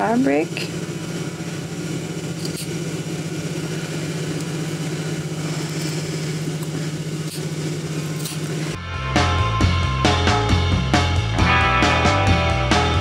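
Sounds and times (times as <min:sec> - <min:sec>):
electric motor hum: 0:00.0 - 0:08.8.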